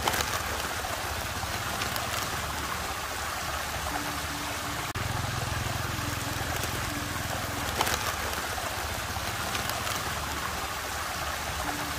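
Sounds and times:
water splash: 0.0 - 11.9
water swirling and gurgling: 0.0 - 11.9
low hum: 3.8 - 10.6.

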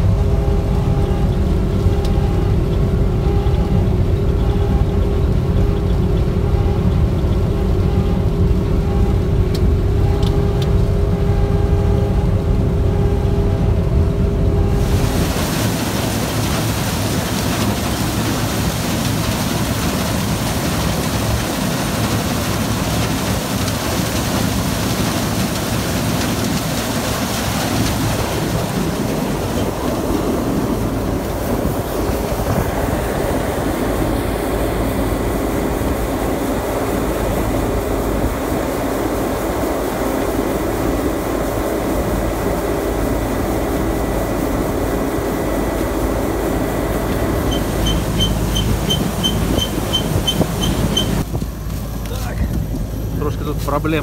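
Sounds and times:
combine harvester running: 0.0 - 54.0
rapid electronic beeping: 0.3 - 9.3.

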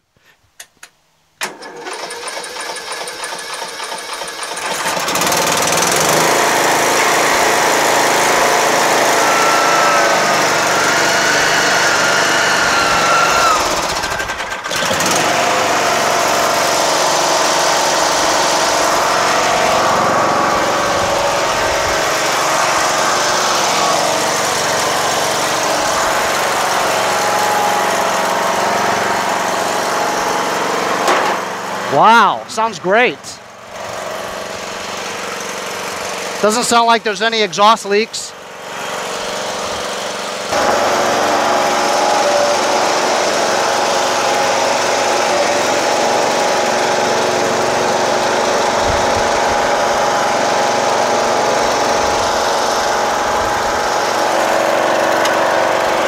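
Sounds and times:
engine cranking: 1.4 - 31.4
lawn tractor engine running: 1.4 - 56.0.

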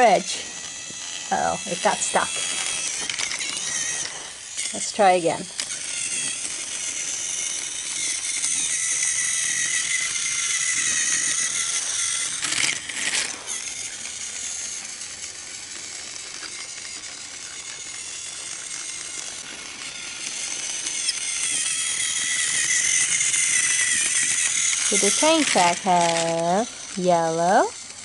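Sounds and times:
toy train clatter: 0.0 - 28.0
toy train motor whining: 0.0 - 28.0.

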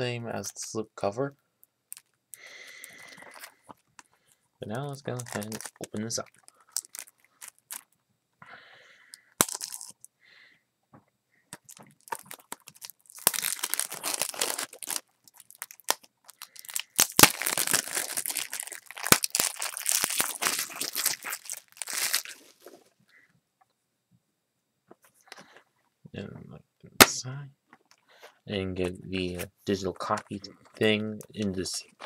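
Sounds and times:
plastic wrap crinkling and tearing: 1.9 - 3.8, 4.7 - 8.0, 11.5 - 22.9.

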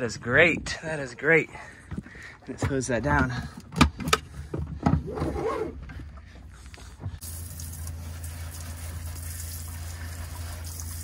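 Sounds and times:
hose nozzle spraying water: 7.2 - 11.0.

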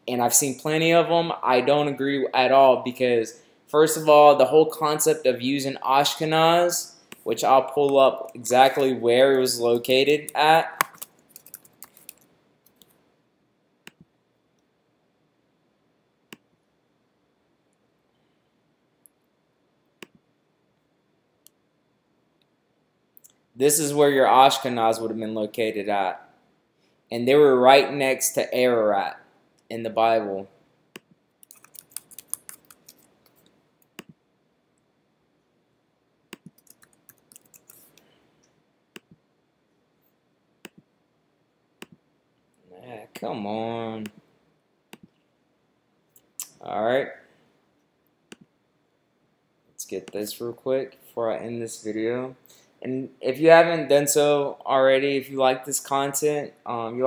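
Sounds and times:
keyboard typing: 10.3 - 13.0, 31.0 - 34.2, 36.3 - 38.0
computer mouse clicks: 31.0 - 34.2, 36.3 - 38.1.

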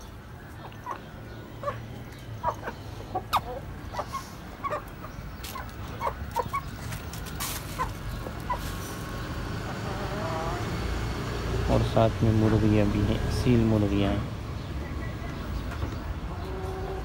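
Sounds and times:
chickens clucking: 0.0 - 10.8, 14.7 - 17.0.

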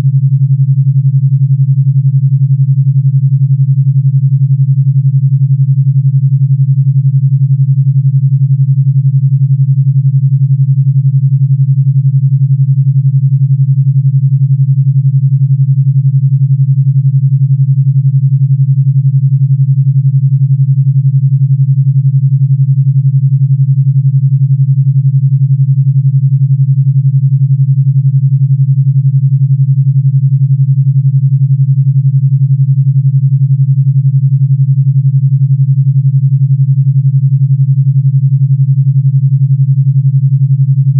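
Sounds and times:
low pulsing binaural tone: 0.0 - 40.9.

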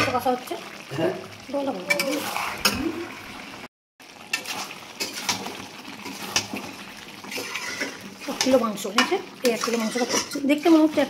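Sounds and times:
meat sizzling in a pan: 0.0 - 11.0
spatula scraping metal pan: 1.9 - 2.8, 4.3 - 11.0.

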